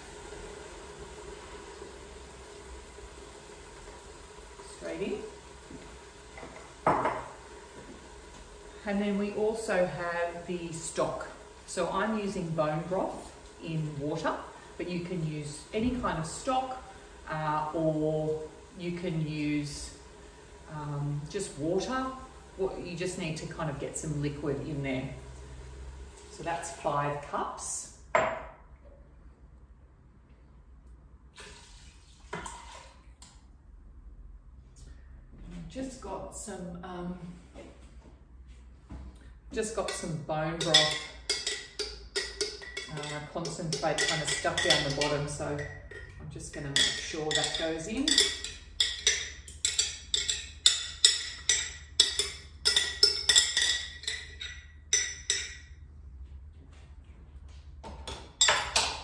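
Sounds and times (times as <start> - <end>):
metal utensil scraping glass jar: 39.9 - 55.7.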